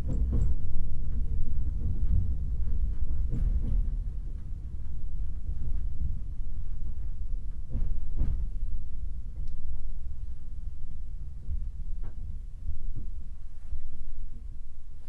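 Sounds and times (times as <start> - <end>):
wheels clicking over rail joints: 0.0 - 9.5
train wheels rumbling: 0.0 - 15.0.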